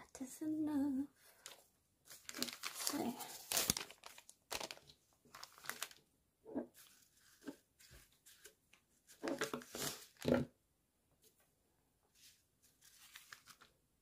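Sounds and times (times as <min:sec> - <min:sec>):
paper bag rustling: 0:01.4 - 0:06.0, 0:06.7 - 0:10.4, 0:12.2 - 0:13.7.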